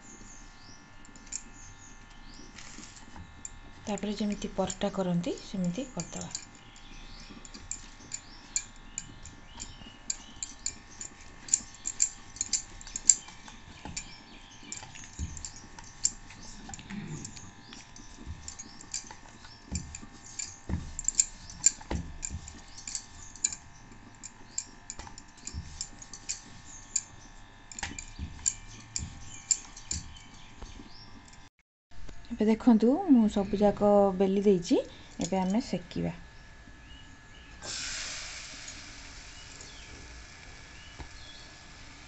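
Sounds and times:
faint steady hum: 0.0 - 42.0
rolling pin on wooden board: 19.6 - 23.3.

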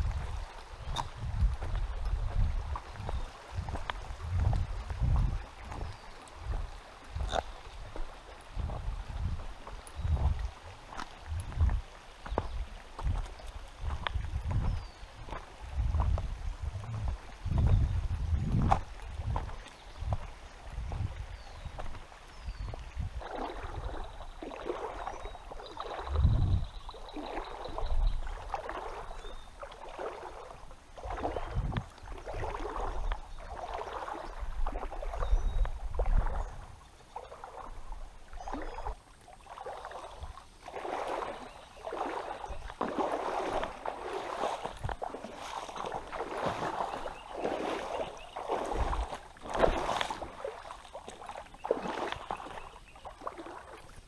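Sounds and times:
dull low thumps: 0.0 - 10.5, 11.2 - 22.0
wading splashes in water: 0.0 - 54.0.

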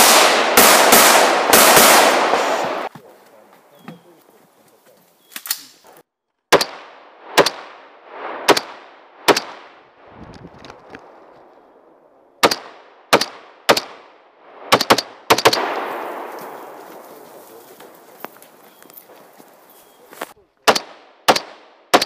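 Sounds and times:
rifle shots with echo: 0.0 - 2.9, 6.5 - 9.9, 12.4 - 17.4, 20.6 - 22.0.

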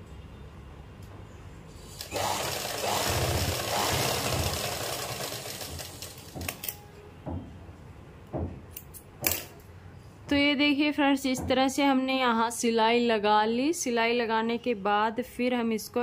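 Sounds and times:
sewing machine stitching: 1.9 - 6.8.

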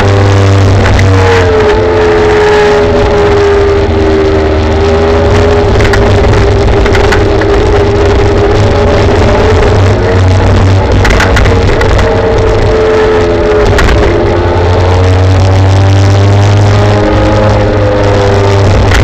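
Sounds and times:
heavy wind: 0.0 - 19.0
road rumble: 0.0 - 19.0
small knocks from riding: 11.0 - 12.2.

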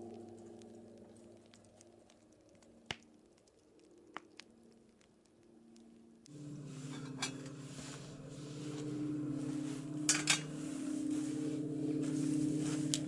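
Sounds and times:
metal teapot clinking on grate: 6.9 - 7.5, 10.1 - 10.5.

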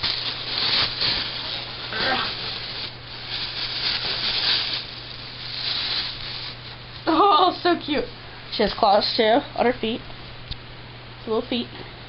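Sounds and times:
bags scraping cardboard box: 0.0 - 6.6
plastic bags rustling: 0.0 - 7.8.

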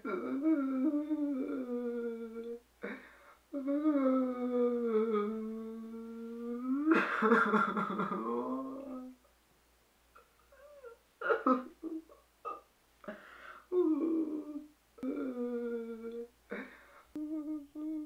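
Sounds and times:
young man crying: 3.6 - 9.2, 10.2 - 12.2, 13.7 - 18.0
sharp breath: 13.1 - 13.7.

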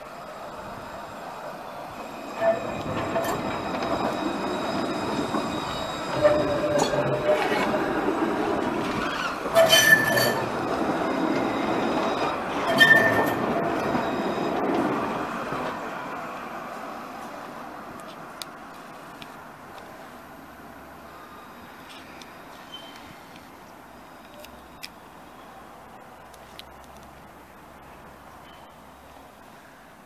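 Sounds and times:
tram wheels rumbling: 0.0 - 29.4
wheels squealing: 0.1 - 15.8, 21.2 - 23.2.

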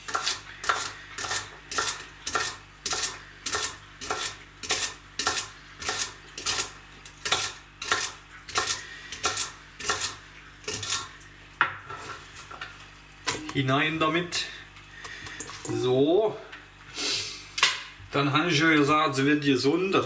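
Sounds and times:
knife chopping celery on board: 0.0 - 11.1.

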